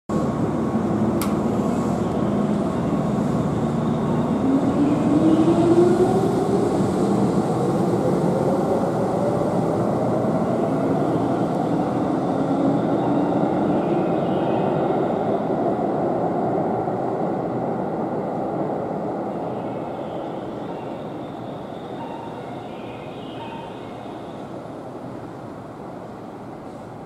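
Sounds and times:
sharp click: 1.2 - 1.4.

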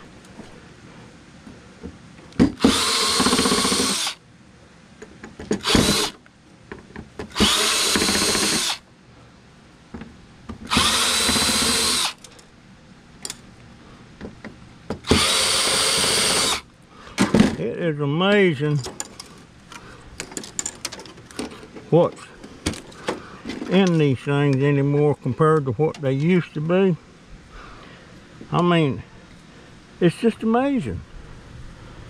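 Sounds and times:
cordless drill running: 2.6 - 4.2, 5.6 - 6.2, 7.3 - 8.8, 10.7 - 12.2, 15.0 - 16.7.

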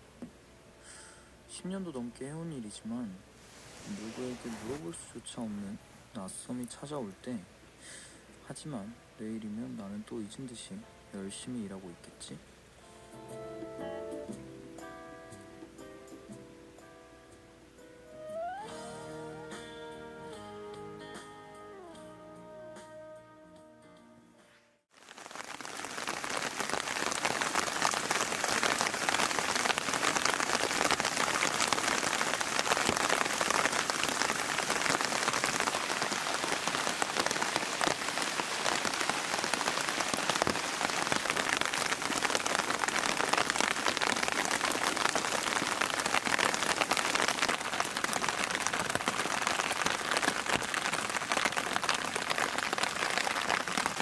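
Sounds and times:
steady rain falling: 0.0 - 12.8, 24.9 - 54.0.

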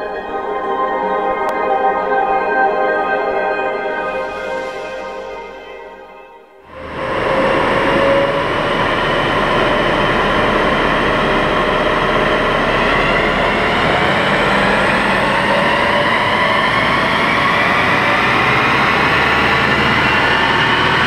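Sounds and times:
diesel engine running hard: 6.7 - 21.0
tyres spinning on dyno rollers: 6.8 - 21.0.

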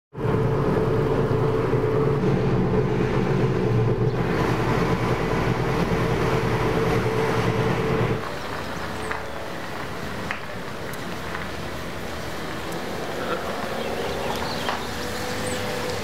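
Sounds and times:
road and engine noise in car: 0.1 - 16.0
low hum: 0.2 - 8.2.

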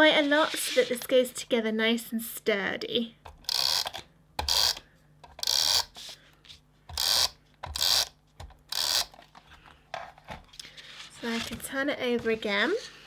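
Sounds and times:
tape runner strokes on paper: 0.0 - 1.0, 5.5 - 7.2.

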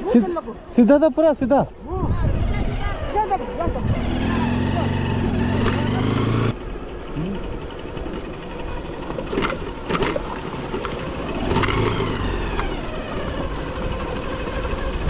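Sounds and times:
motorcycle running at low speed: 2.1 - 15.0
wheels knocking on stones: 7.6 - 15.0.

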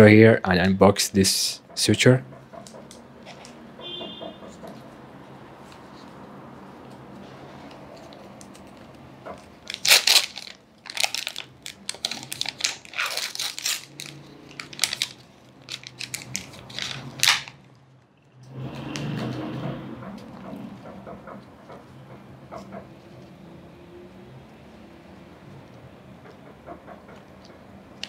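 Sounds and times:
card handling: 7.6 - 17.6
plastic and paper pack tearing: 9.6 - 17.6.

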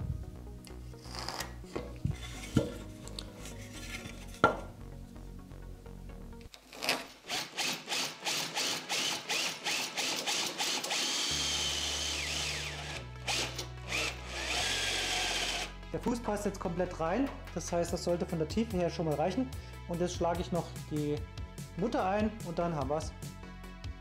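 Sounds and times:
cordless drill boring into wood: 6.8 - 15.7.

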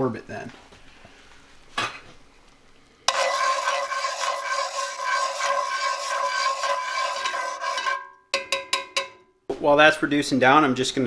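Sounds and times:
sauce boiling and sizzling in skillet: 3.1 - 8.1
metal tongs stirring: 3.1 - 9.1.

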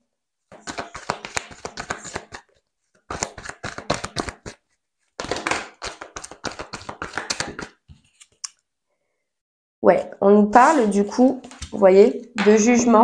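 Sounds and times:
cards tapped down: 0.5 - 2.4, 3.1 - 4.6, 5.2 - 7.8
cards being shuffled: 0.5 - 8.6.

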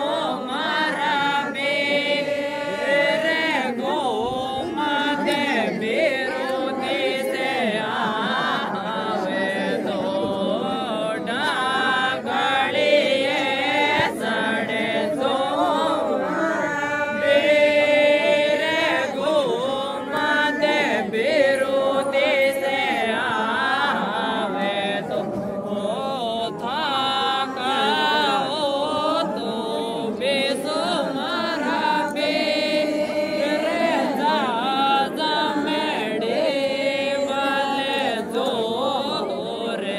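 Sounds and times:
group singing folk song: 0.0 - 39.9.

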